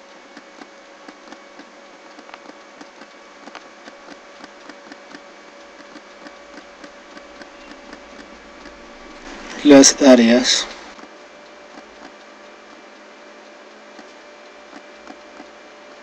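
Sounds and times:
low electrical hum: 0:00.0 - 0:16.0
computer mouse clicks: 0:00.3 - 0:08.8, 0:13.9 - 0:15.6.

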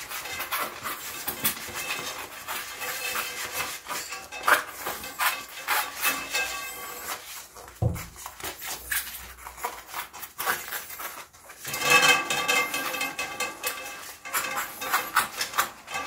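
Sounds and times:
rubber tyre rubbing and rustling: 0:00.0 - 0:12.8.

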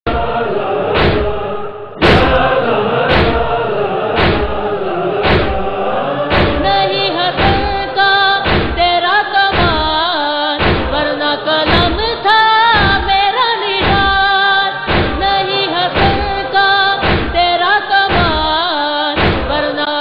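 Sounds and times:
voices chanting in unison: 0:00.0 - 0:20.0
heavy thuds: 0:00.1 - 0:18.6, 0:19.2 - 0:19.8.

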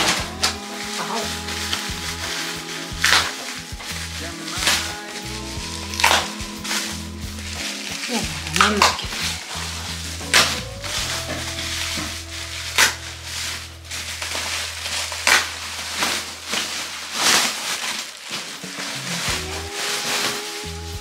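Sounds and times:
soft background music: 0:00.0 - 0:17.4
bubble wrap rustling and crinkling: 0:00.0 - 0:21.0.

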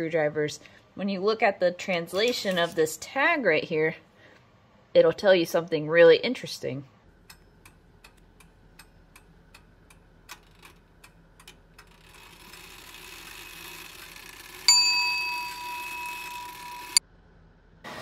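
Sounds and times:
small bell ringing: 0:14.7 - 0:17.0.

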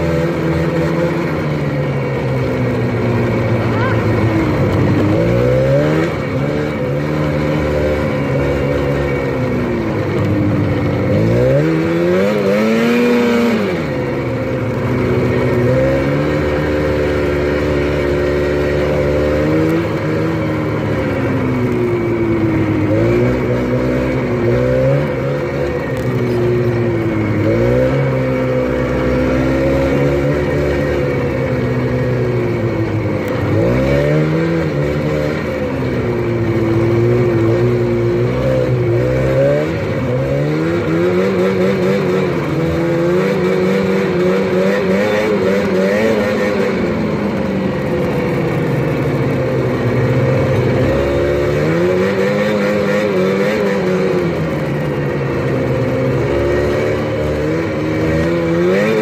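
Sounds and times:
snowmobile engine revving: 0:00.0 - 0:59.0.

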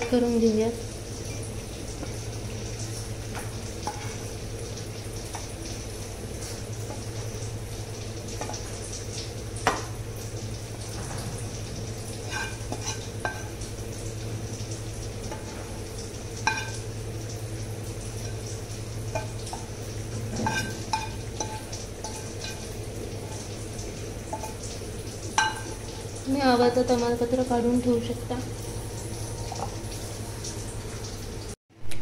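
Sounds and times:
spatula scraping pan: 0:12.2 - 0:13.5, 0:19.2 - 0:23.5.

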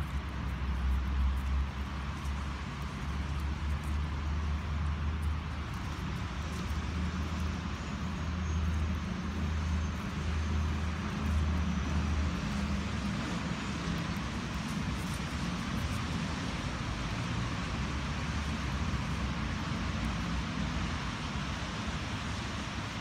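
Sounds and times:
distant road traffic: 0:00.0 - 0:23.0.

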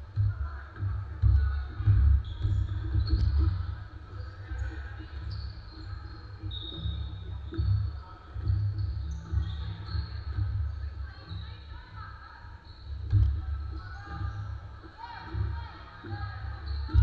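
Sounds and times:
basketball bouncing on floor: 0:00.1 - 0:10.8, 0:13.0 - 0:14.5
sneakers squeaking: 0:00.2 - 0:17.0.

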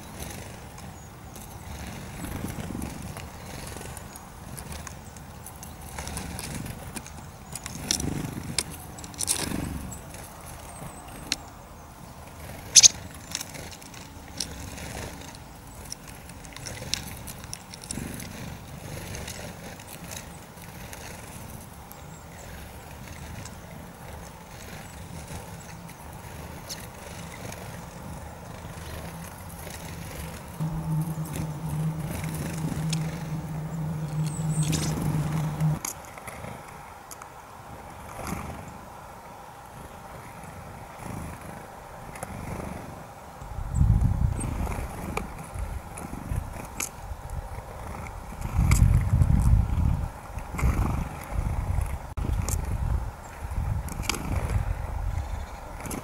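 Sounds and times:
low steady rumble: 0:26.0 - 0:35.8.

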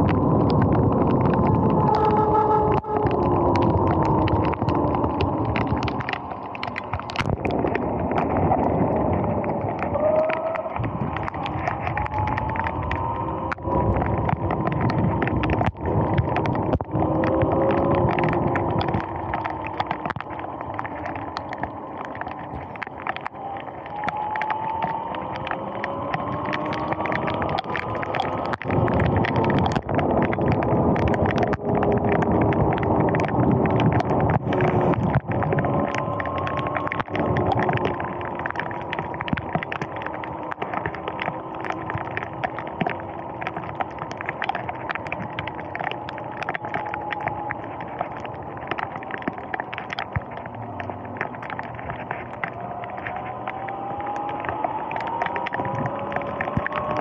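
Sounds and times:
rain ticking on camera: 0:00.0 - 0:57.0
wind and tyre spray: 0:23.3 - 0:43.7.

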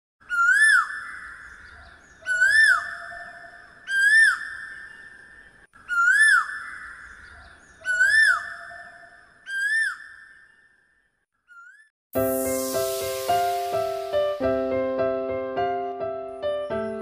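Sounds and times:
sliding whistle-like note: 0:12.2 - 0:15.0.

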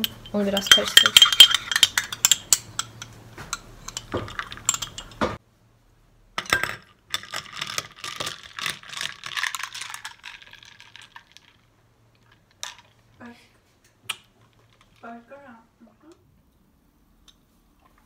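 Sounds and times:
spoon clinking in a glass: 0:00.0 - 0:05.2.

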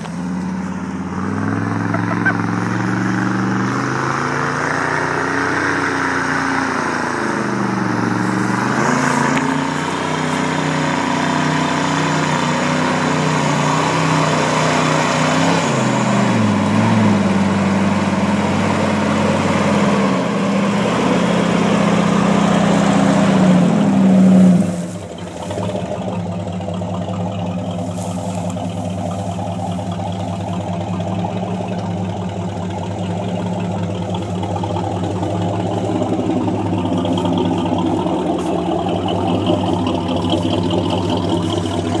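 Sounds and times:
truck engine revving and idling: 0:00.0 - 0:42.0.

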